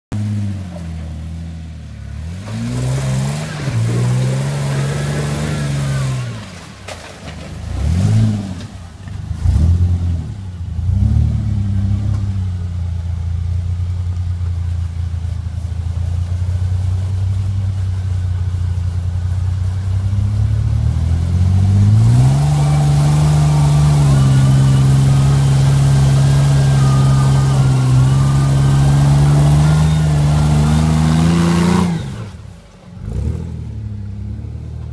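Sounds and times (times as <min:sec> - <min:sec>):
engine revving: 0:02.2 - 0:06.6, 0:07.6 - 0:12.6, 0:19.8 - 0:34.7
tyres spinning in dirt: 0:02.4 - 0:09.4, 0:21.6 - 0:33.2.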